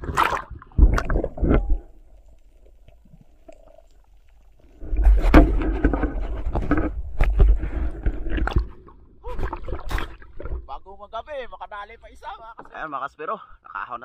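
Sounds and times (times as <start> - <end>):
water splashing and sloshing: 0.0 - 11.2.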